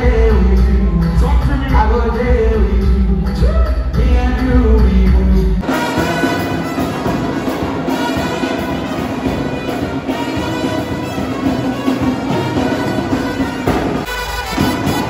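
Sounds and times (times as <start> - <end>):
heavy bass music over sound system: 0.0 - 5.9
brass band playing: 5.6 - 15.0.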